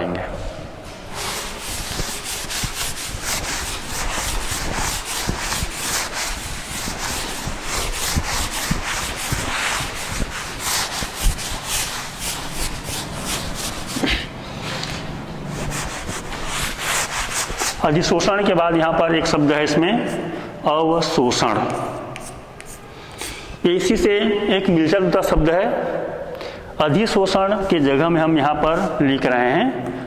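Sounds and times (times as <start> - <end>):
duster scrubbing a chalkboard: 0.8 - 20.4, 21.0 - 23.4.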